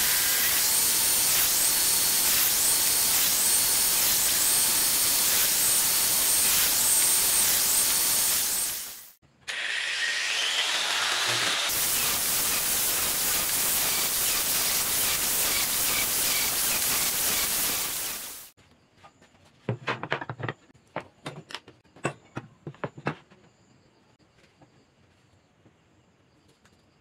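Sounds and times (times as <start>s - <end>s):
angle grinder sanding wood: 0.0s - 18.5s.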